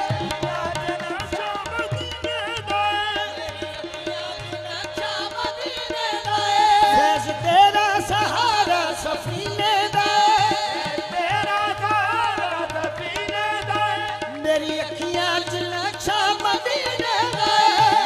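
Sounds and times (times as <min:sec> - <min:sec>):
person singing ornamented vocals: 0:00.0 - 0:12.3
harmonium: 0:00.0 - 0:18.0
tabla: 0:00.0 - 0:18.0.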